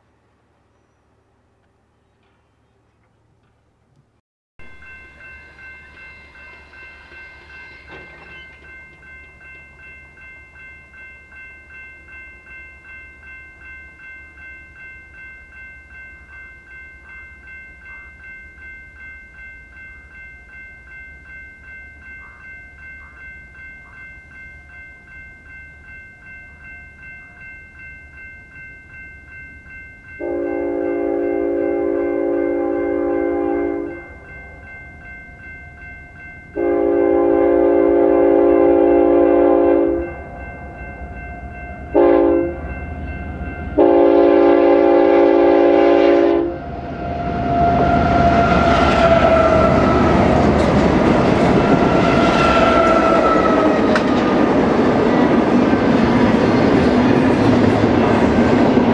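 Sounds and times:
crossing bell ringing: 0:04.6 - 0:58.9
loud train horn: 0:30.2 - 0:34.0, 0:36.6 - 0:40.2, 0:41.9 - 0:42.8, 0:43.8 - 0:54.2.

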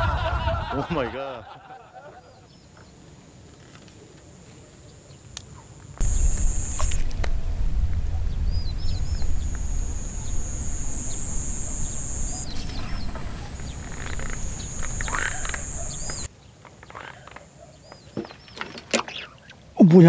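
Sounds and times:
high whine: 0:06.0 - 0:16.3
rumbling handling noise: 0:06.0 - 0:16.3
short chirping calls: 0:06.0 - 0:16.3
wind noise: 0:06.0 - 0:16.3.

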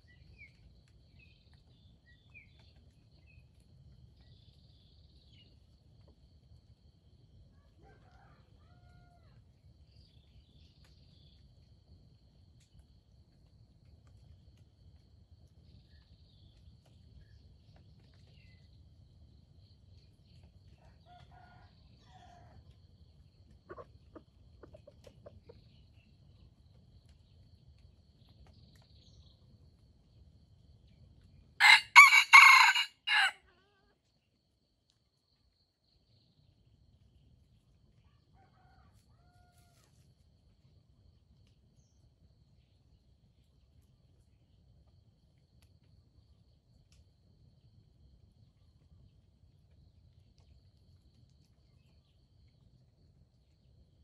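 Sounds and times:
rooster crowing: 0:31.6 - 0:33.4.

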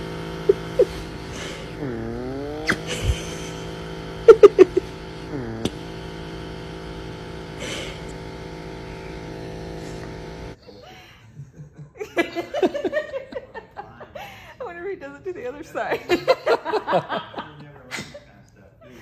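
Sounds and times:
electric nail grinder whining: 0:00.0 - 0:10.6.

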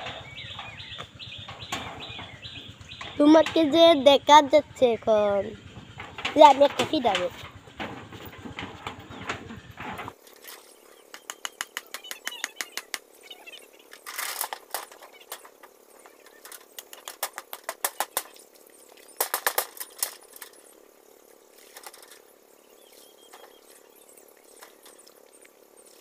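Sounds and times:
metal sheeting rattling knocks: 0:00.0 - 0:04.3, 0:05.3 - 0:10.2, 0:14.0 - 0:18.4, 0:19.1 - 0:20.7.

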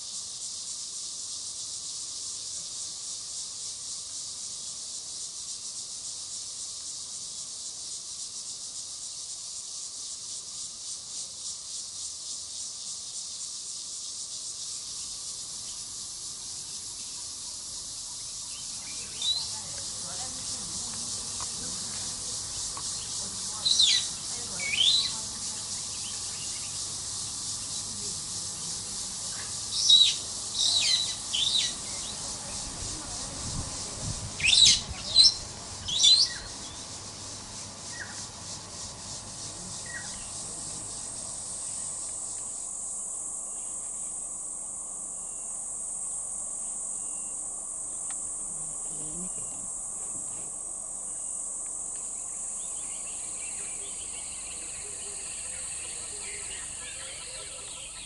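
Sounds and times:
high insect drone: 0:00.0 - 0:58.0
high insect hiss: 0:00.0 - 0:58.0
birds chirping: 0:16.6 - 0:38.3, 0:52.0 - 0:58.0.

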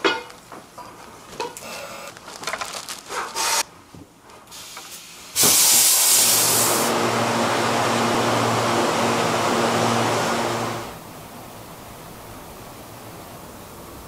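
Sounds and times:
plastic wrap crackling: 0:02.0 - 0:03.6
loud steady hiss: 0:04.5 - 0:14.0.

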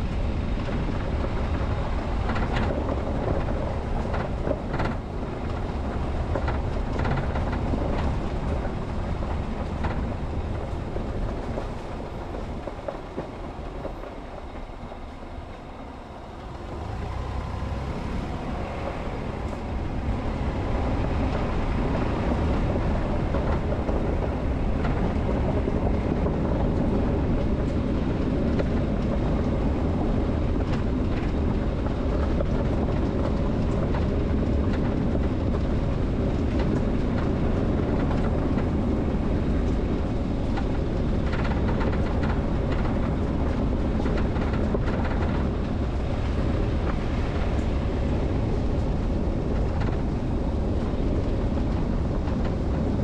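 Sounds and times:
tyre and engine rumble: 0:00.0 - 0:53.0.

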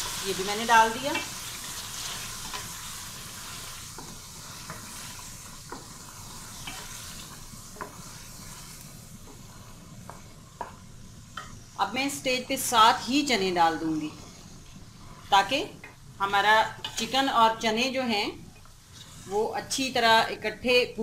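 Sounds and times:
chicken sizzling in oil: 0:00.0 - 0:12.0.

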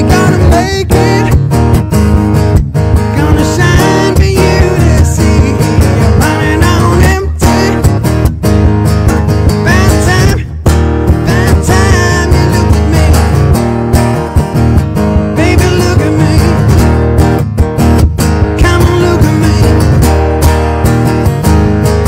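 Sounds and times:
wordless vocal phrases: 0:00.0 - 0:01.4, 0:03.1 - 0:07.9, 0:09.6 - 0:10.6, 0:11.2 - 0:13.4, 0:15.4 - 0:16.7, 0:18.6 - 0:19.9
acoustic guitar strumming: 0:00.0 - 0:22.0.

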